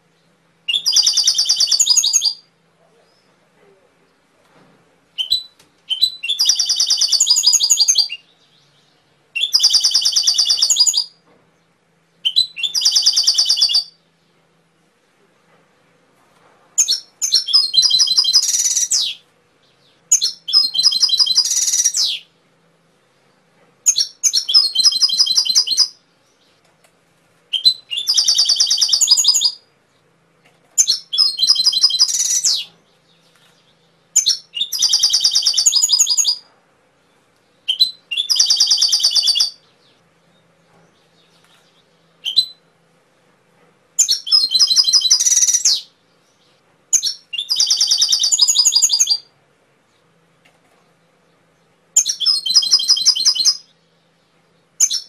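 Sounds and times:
canary singing high trills: 0.7s - 2.5s, 5.2s - 11.2s, 12.2s - 14.0s, 16.8s - 22.3s, 23.8s - 26.0s, 27.5s - 29.7s, 30.8s - 36.4s, 37.6s - 40.0s, 41.2s - 42.7s, 44.0s - 49.3s, 52.0s - 53.9s, 54.8s - 55.0s.

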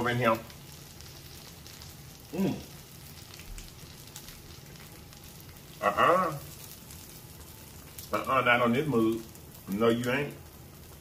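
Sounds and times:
meat sizzling on grill: 0.0s - 11.0s
person exclaiming: 2.3s - 2.7s
person humming mmm: 2.3s - 2.7s.

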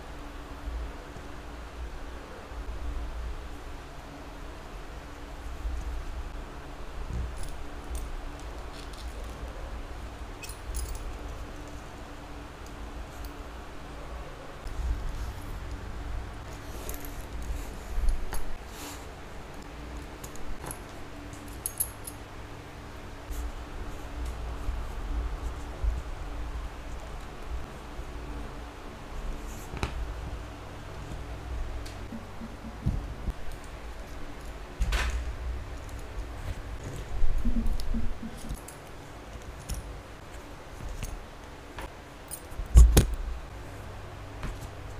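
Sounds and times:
soft handling rustle: 7.0s - 9.7s
metal buckles clinking: 10.4s - 11.4s, 20.2s - 22.3s.

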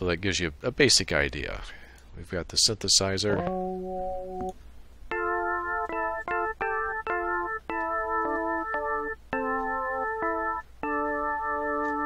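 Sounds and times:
synthesizer keyboard chords: 3.3s - 12.0s.

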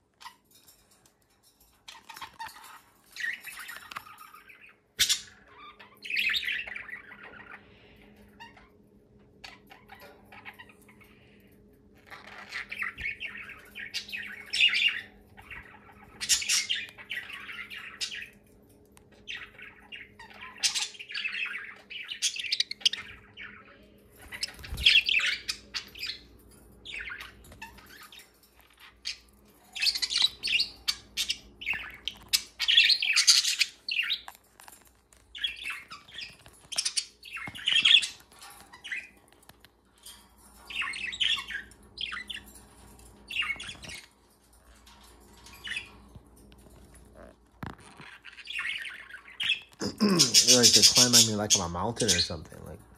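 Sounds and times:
budgerigars chirping: 1.9s - 8.8s, 12.1s - 18.4s, 19.1s - 34.3s, 35.3s - 39.2s, 40.0s - 44.1s, 47.1s - 52.8s.

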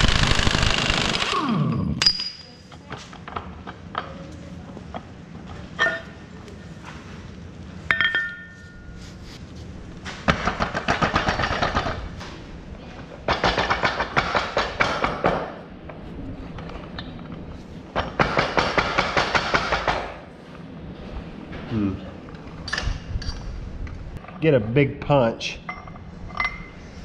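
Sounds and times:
ringing metal clank: 5.8s - 6.2s, 7.9s - 9.0s
impact wrench hammering: 10.2s - 12.0s, 13.2s - 15.6s, 18.0s - 20.2s.

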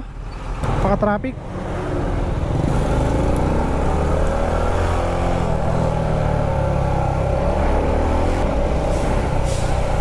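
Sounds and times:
low rumble of traffic: 0.0s - 10.0s.

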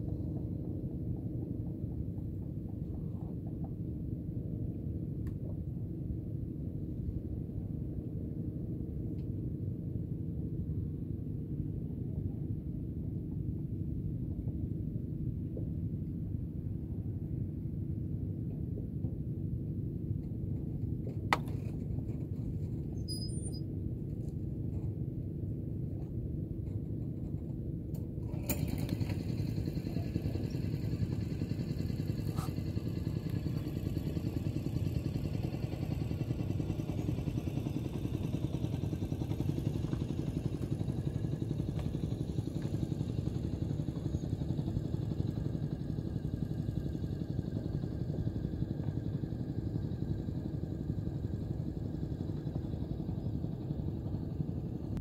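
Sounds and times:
motor engine humming: 27.9s - 55.0s.

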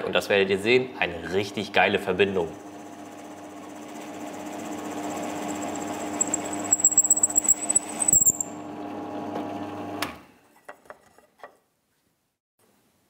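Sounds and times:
drill press boring wood: 3.9s - 8.5s.

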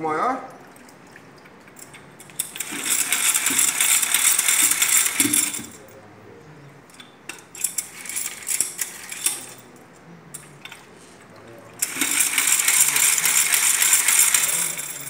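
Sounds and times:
paint roller spinner whirring: 2.4s - 5.7s, 11.8s - 15.0s.

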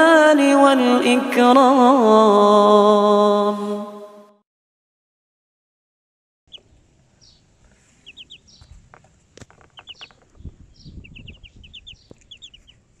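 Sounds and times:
ducklings peeping: 6.5s - 13.0s.

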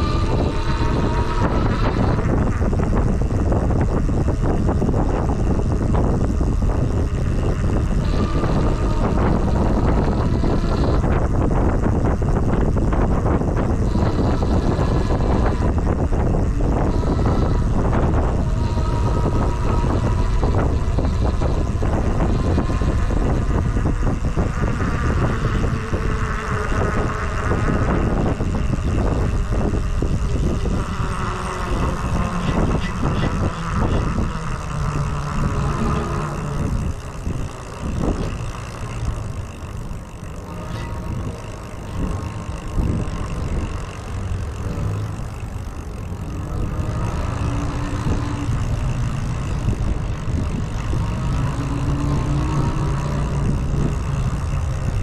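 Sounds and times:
wind and road rumble: 0.0s - 55.0s.

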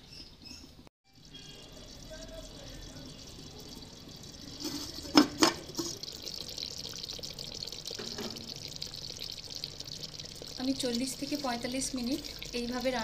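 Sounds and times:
curry simmering with hiss: 1.1s - 13.0s
clay lid clinking on clay pot: 4.6s - 6.0s.

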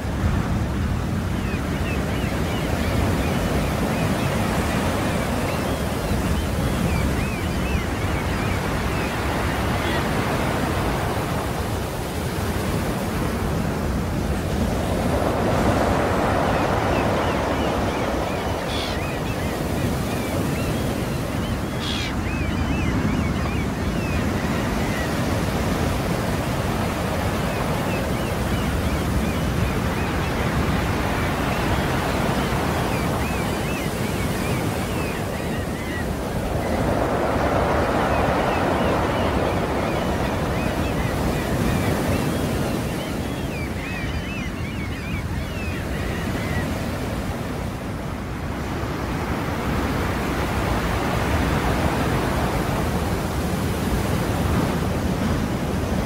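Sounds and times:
sea surf washing in: 8.1s - 21.8s, 24.8s - 43.6s.

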